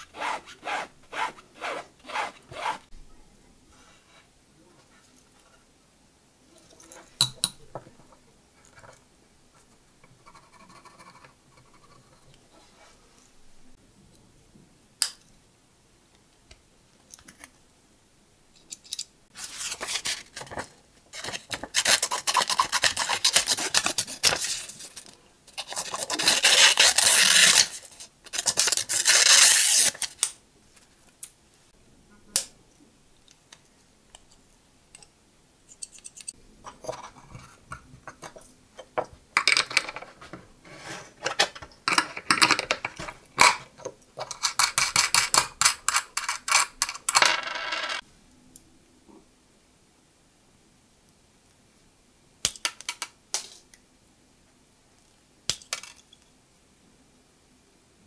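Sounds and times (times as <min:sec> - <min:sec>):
metal scraping and rubbing: 0:39.6 - 0:41.6.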